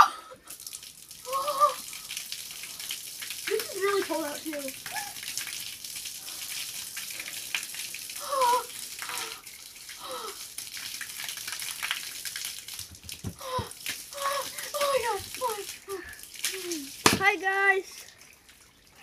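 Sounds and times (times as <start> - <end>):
garden hose spraying water: 0.0 - 19.0
short vocal cries: 1.3 - 1.9.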